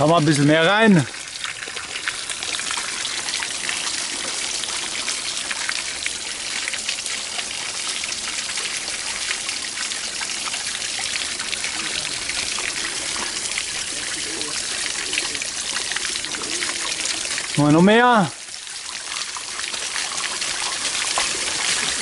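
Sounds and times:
water drips: 0.0s - 22.0s
water rushing and splashing: 0.0s - 22.0s.

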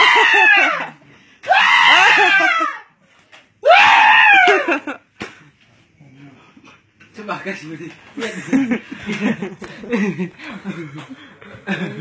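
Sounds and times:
child screaming: 1.5s - 2.9s.

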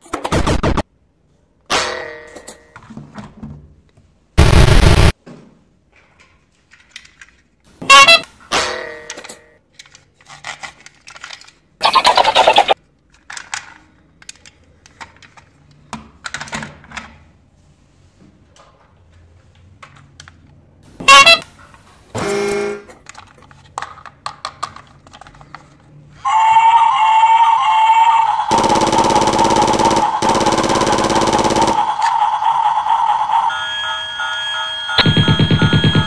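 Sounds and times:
plastic toy trains clacking: 9.0s - 11.7s, 13.0s - 15.6s, 22.9s - 25.9s
toy robot electronic tone: 31.6s - 36.0s.

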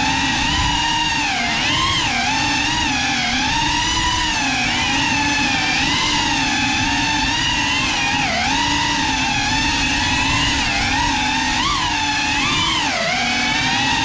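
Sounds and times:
drone motors whining: 0.0s - 14.0s.

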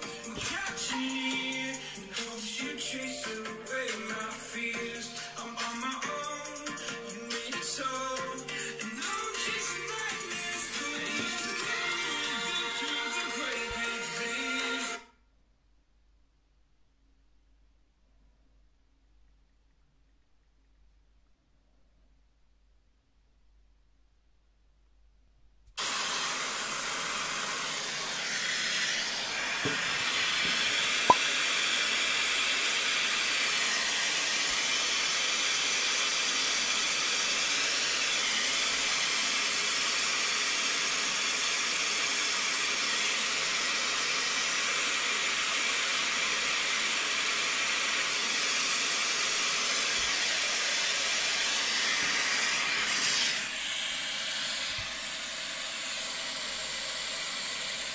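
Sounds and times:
pink noise hiss from speakers: 0.0s - 15.0s.

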